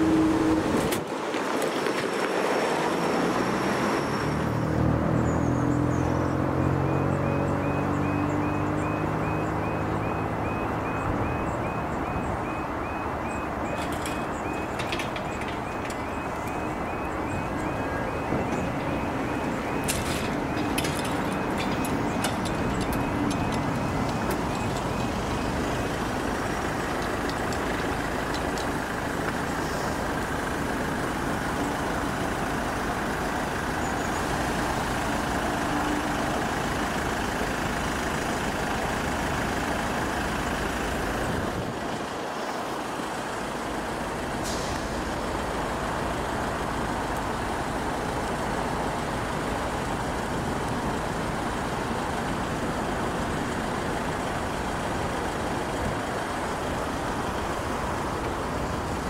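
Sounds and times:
motor vehicles rumbling: 0.0 - 59.0.

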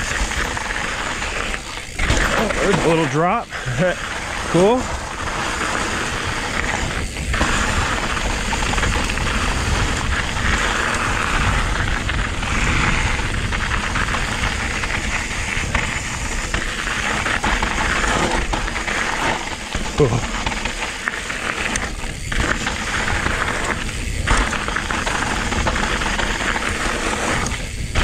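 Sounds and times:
bike clattering: 0.0 - 28.0
tyres crunching over gravel: 0.0 - 28.0
wind on microphone: 3.6 - 18.6.

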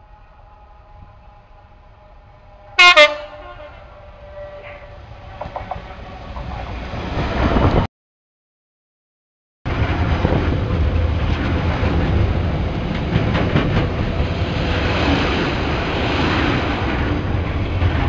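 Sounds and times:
locomotive engine and wheel rumble: 0.0 - 7.9, 9.7 - 18.0
two-tone train horn: 2.6 - 5.0.

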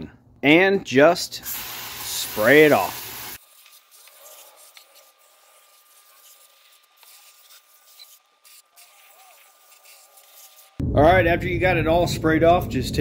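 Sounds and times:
hose water spray hissing: 1.4 - 10.8.

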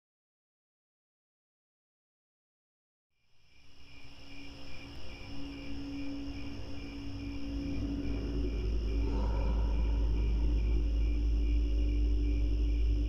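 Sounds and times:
cricket-like chirping: 3.2 - 13.0
higher steady tones: 5.0 - 13.0
low rumble: 5.6 - 13.0.

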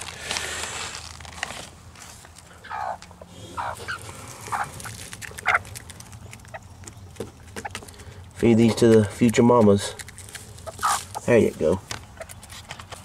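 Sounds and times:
rustle: 0.0 - 6.0
hens clucking: 2.5 - 9.0, 10.5 - 12.6.

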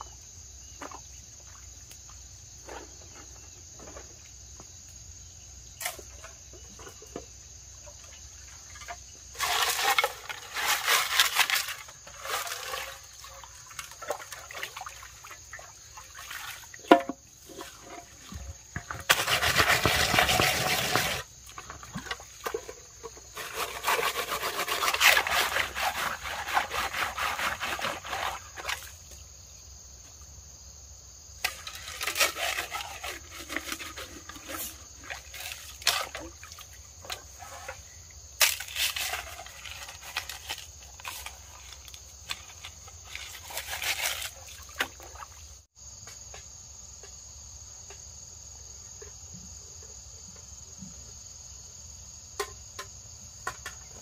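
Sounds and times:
water splashing as pots are rinsed: 7.8 - 29.1, 31.4 - 45.6.

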